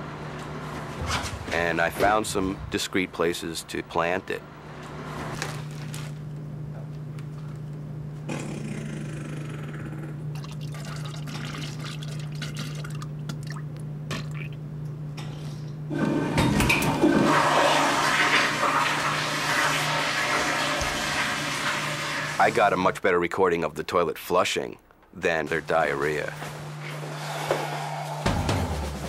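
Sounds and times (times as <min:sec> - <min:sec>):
low steady hum: 0:00.0 - 0:17.2
toilet flushing: 0:10.4 - 0:13.1, 0:15.9 - 0:22.9.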